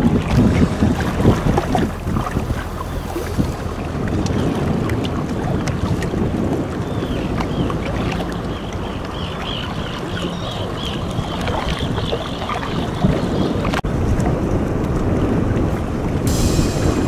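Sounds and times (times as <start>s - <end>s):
choppy water: 0.0s - 17.0s
wind rumbling on microphone: 0.0s - 17.0s.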